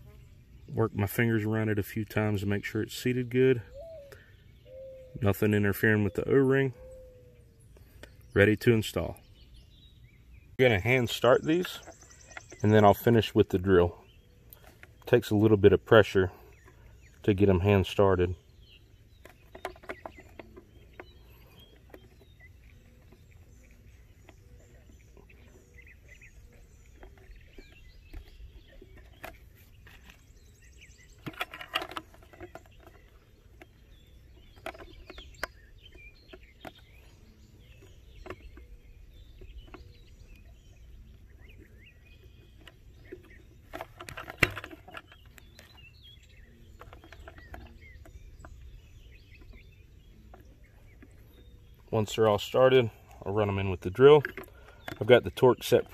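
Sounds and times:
faint bird chirps: 0.0 - 55.9
handling noise: 10.6 - 55.9
small plastic clicks and creaks: 31.2 - 38.7, 42.4 - 45.9, 46.7 - 55.9.

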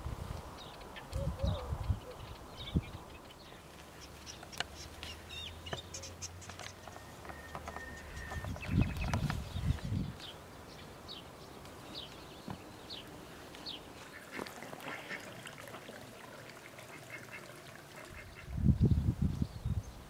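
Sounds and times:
bird chirping: 0.5 - 14.2.

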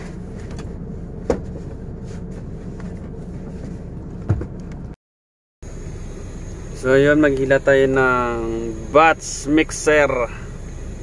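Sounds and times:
dull thump: 1.2 - 1.8, 4.2 - 4.7
truck engine idling: 5.6 - 11.0.

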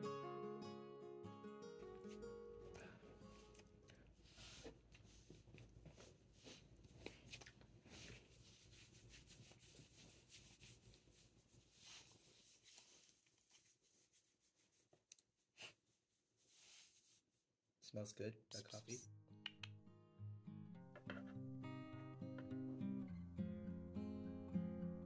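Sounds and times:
hands rubbing dog fur: 4.2 - 17.5.

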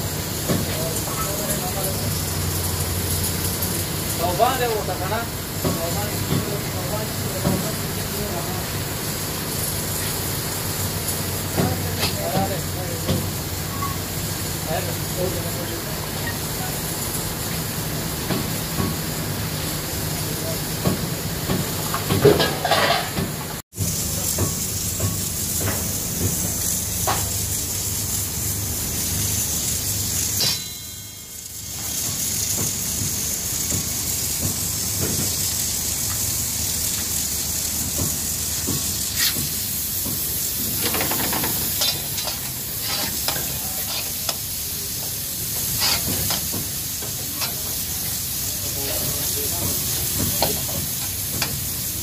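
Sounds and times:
meat sizzling in a pan: 0.0 - 22.8, 23.7 - 52.0
metal tongs scraping a pan: 22.4 - 23.2, 39.1 - 39.5, 40.8 - 48.2.

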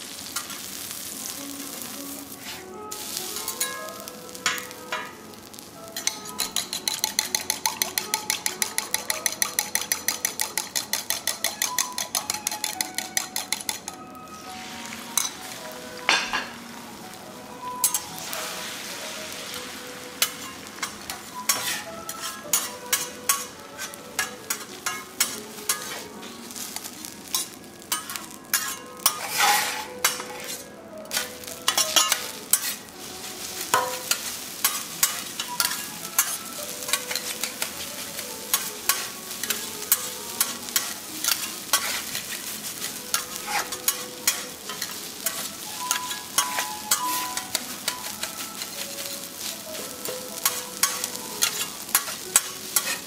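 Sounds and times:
food sizzling on a griddle: 0.0 - 53.0
metal spatulas scraping and clacking: 6.0 - 14.0, 15.2 - 15.4, 20.2 - 26.1, 26.8 - 32.9, 33.7 - 37.9, 38.5 - 53.0.

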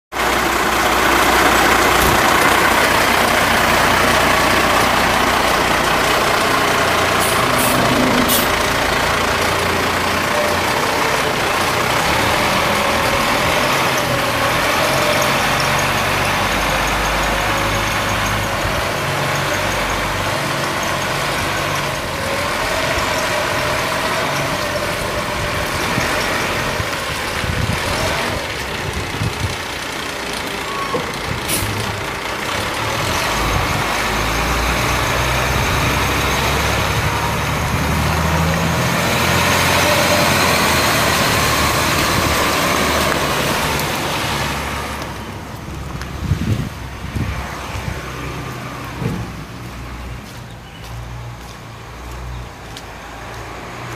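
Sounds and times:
diesel truck engine running: 0.1 - 53.9.

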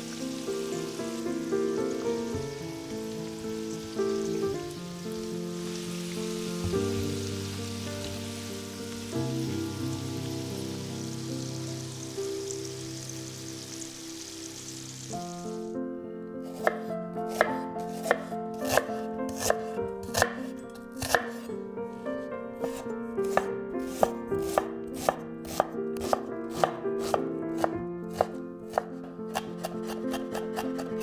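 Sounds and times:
knife chopping on wooden board: 16.6 - 20.4, 21.0 - 21.5, 22.6 - 31.0.

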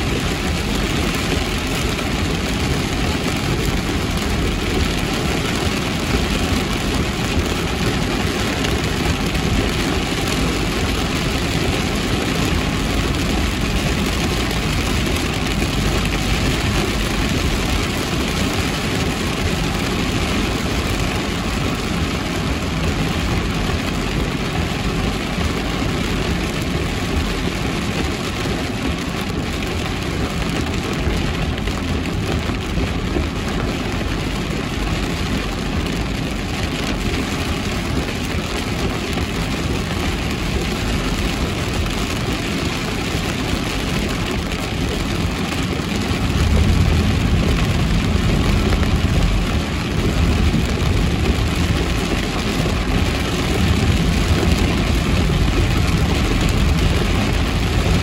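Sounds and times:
heavy rain: 0.0 - 58.0
tyres on wet road: 0.0 - 58.0.

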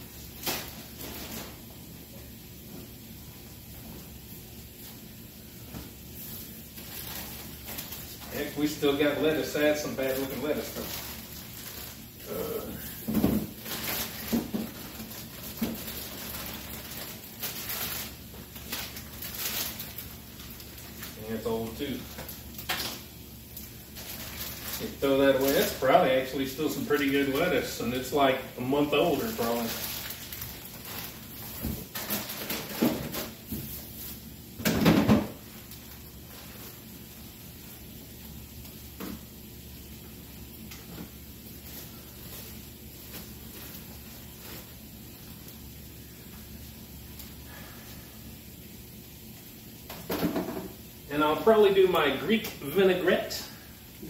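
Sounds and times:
plastic bag crinkling: 6.8 - 12.7, 13.4 - 33.4, 41.5 - 45.6
clatter in refrigerator: 31.6 - 33.4, 34.6 - 35.4.

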